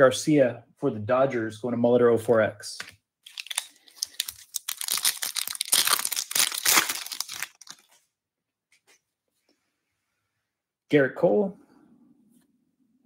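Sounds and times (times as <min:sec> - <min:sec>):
foil wrapper tearing and crinkling: 0:03.2 - 0:08.0.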